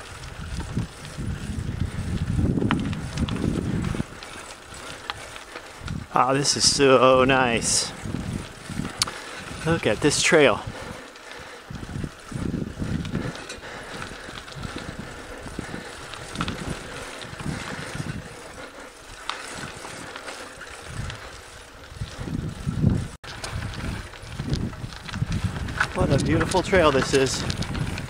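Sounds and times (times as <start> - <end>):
light clicks from bicycle: 0.0 - 6.1, 7.6 - 28.0
wind gusting on microphone: 0.0 - 28.0.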